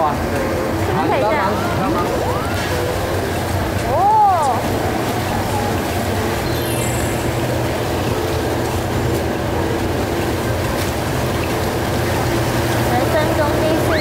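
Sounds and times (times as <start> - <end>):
kitchen equipment rumble and hum: 0.0 - 14.0
falling electronic tones: 4.0 - 8.6.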